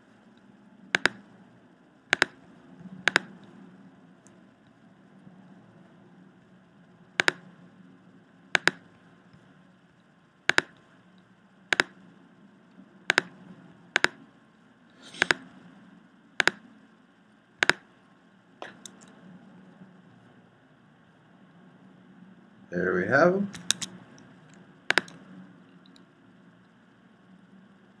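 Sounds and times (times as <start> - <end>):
faint steady hum: 0.0 - 28.0
computer mouse button clicking: 1.0 - 1.2, 2.1 - 2.4, 3.1 - 3.3, 7.2 - 7.4, 8.6 - 8.8, 10.5 - 10.8, 11.7 - 11.9, 13.1 - 13.3, 14.0 - 14.2, 15.0 - 15.4, 16.4 - 16.6, 17.6 - 17.8, 23.6 - 23.9, 24.9 - 25.2.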